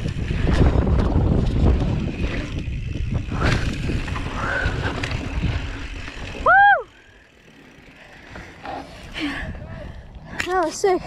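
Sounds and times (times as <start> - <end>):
bike tyres crunching on dirt: 0.0 - 9.4
bike frame rattling: 0.0 - 11.0
wind rumble: 0.0 - 11.0.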